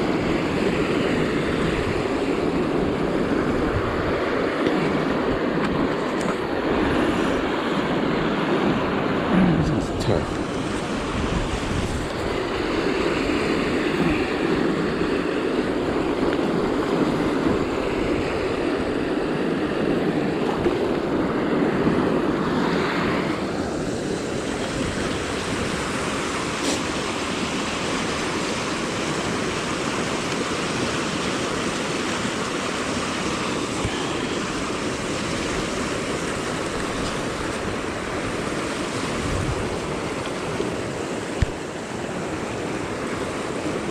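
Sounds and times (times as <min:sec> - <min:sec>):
river water flowing: 0:00.0 - 0:43.9.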